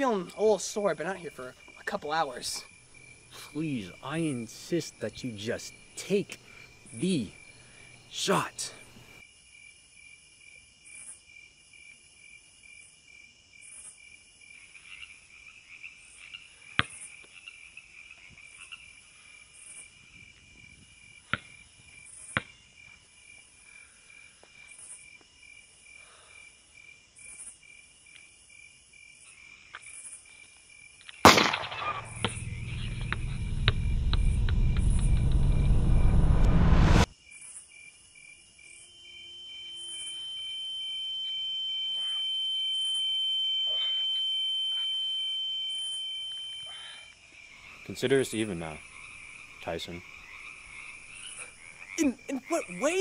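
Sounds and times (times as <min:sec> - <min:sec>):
crickets chirping: 0:00.0 - 0:53.0
loud hit: 0:31.3 - 0:37.1
deep rumbling swell: 0:32.0 - 0:37.1.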